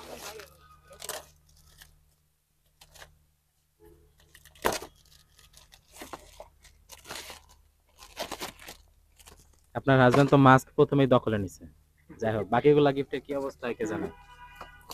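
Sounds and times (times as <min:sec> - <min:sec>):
wrapping paper tearing: 0:00.0 - 0:03.2, 0:04.2 - 0:09.7.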